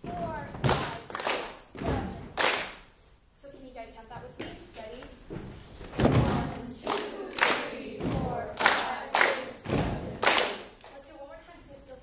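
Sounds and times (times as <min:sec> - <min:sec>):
heavy foot stomps: 0:01.8 - 0:02.4, 0:05.3 - 0:06.7, 0:08.0 - 0:08.6, 0:09.6 - 0:10.2
hand claps: 0:02.3 - 0:02.8, 0:06.8 - 0:07.8, 0:08.6 - 0:11.0
choir singing: 0:06.4 - 0:10.2.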